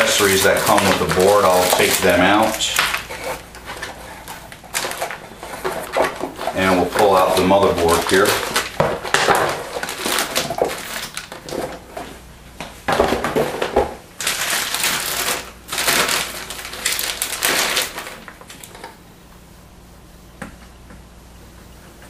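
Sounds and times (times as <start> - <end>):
plastic bag crinkling: 0.0 - 12.1, 13.6 - 19.0.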